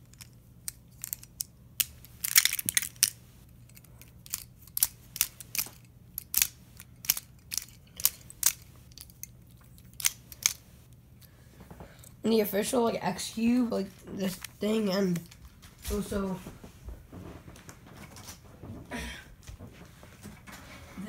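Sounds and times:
plastic puzzle pieces clicking: 0.0 - 10.6.

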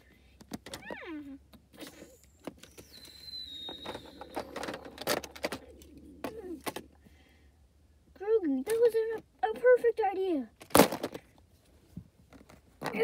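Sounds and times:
plastic bricks clicking and clattering: 3.6 - 6.9
child making sound effects: 5.7 - 6.8.

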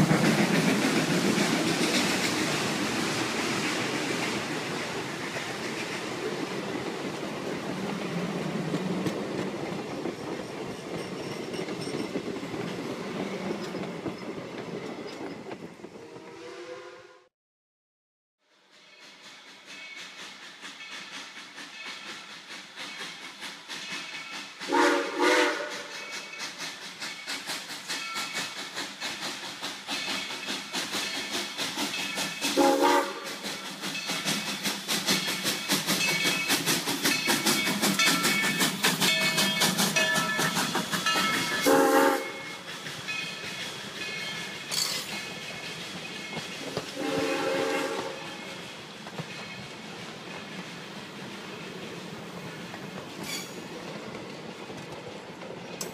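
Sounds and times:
wheels clicking on rail joints: 0.0 - 16.0, 18.9 - 55.9
steam locomotive chuffing: 0.0 - 16.9, 18.5 - 55.9
steam whistle blasts: 16.0 - 17.3, 24.7 - 26.1, 32.5 - 33.5, 41.4 - 42.6, 47.0 - 48.6.

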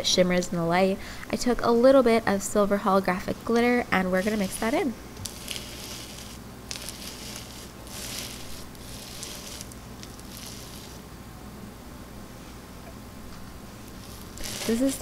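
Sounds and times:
bead slime crunching: 4.2 - 11.0, 13.9 - 15.0.

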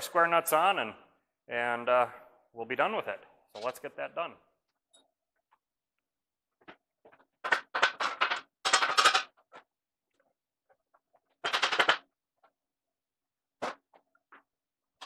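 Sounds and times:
metal and wood rattling clatter: 6.6 - 9.7.

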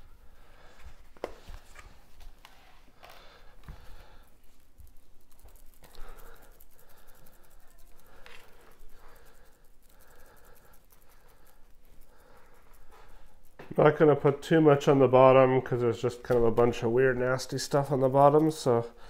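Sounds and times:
shaker bottle rattling: 3.8 - 14.4.

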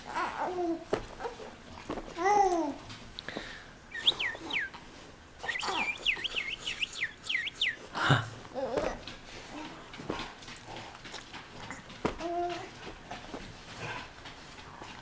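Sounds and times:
baby cooing: 0.0 - 1.5, 2.2 - 2.8, 5.4 - 6.0, 8.5 - 9.8, 11.7 - 12.7
quick high chirps: 3.9 - 4.8, 5.4 - 7.8.

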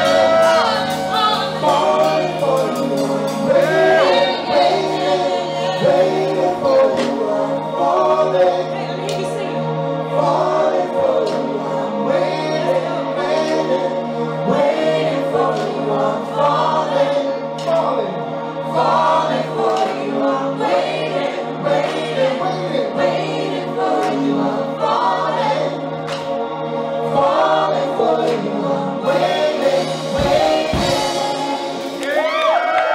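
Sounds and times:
drums: 0.0 - 8.2, 27.1 - 32.9
singers singing together: 0.0 - 32.9.

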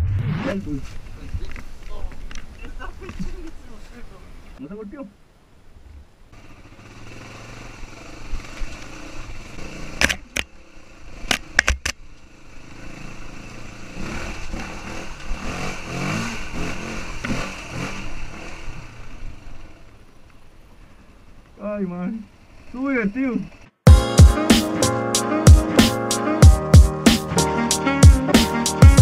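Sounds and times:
dirt bike engine revving: 6.4 - 11.6, 12.4 - 19.9.

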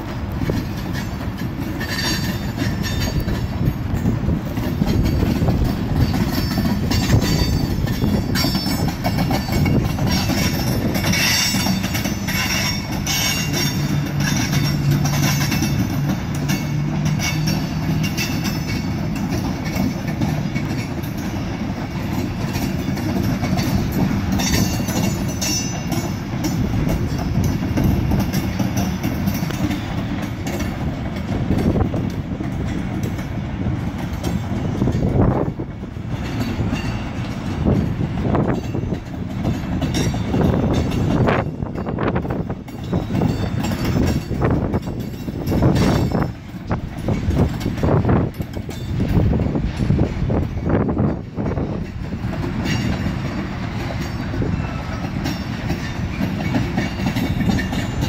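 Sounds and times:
clickety-clack over rail joints: 0.0 - 58.0
freight train wheels rumbling: 0.0 - 58.0
wind buffeting microphone: 0.0 - 58.0
faint high wheel squeals: 9.5 - 15.8, 53.9 - 58.0.

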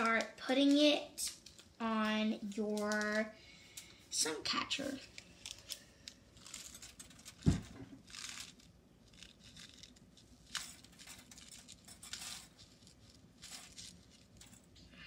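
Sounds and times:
plastic bag crinkling: 0.0 - 3.3, 5.0 - 14.9
thump: 7.4 - 8.0.

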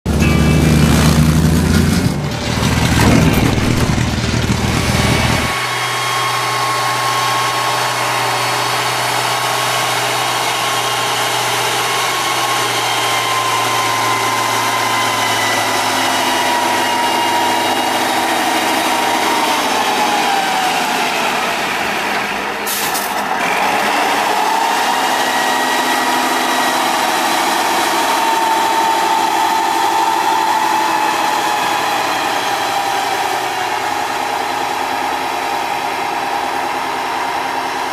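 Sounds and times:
diesel truck engine running: 0.0 - 37.9
loud rumbling: 0.1 - 5.8
steady whine: 0.1 - 8.4.

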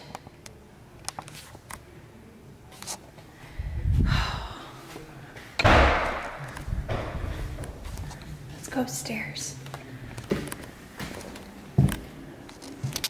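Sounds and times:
low thump: 5.6 - 7.7.

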